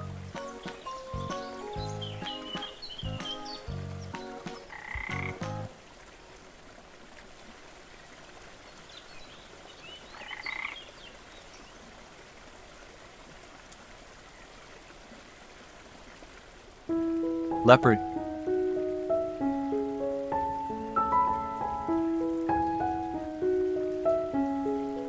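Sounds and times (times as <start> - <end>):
music: 0.0 - 5.7, 16.9 - 25.0
faint outdoor ambience: 0.0 - 25.0.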